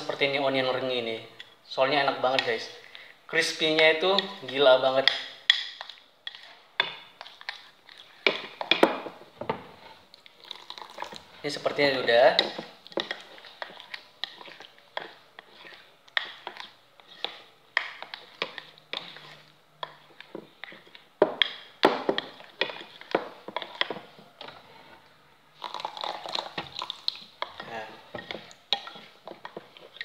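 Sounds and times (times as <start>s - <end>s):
spoon clinking and scraping bowl: 3.7s - 8.9s, 10.5s - 25.0s, 25.6s - 30.0s.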